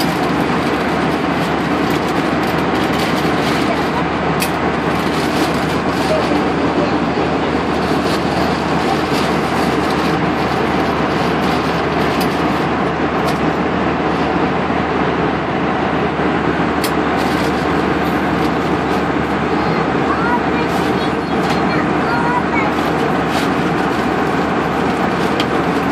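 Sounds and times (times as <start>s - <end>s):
jet engines: 0.0s - 25.9s
rushing airflow: 0.0s - 25.9s.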